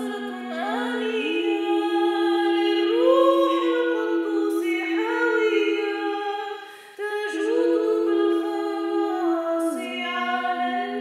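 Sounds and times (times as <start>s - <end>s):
held vocal drone: 0.0s - 11.0s
woman chanting: 0.0s - 11.0s.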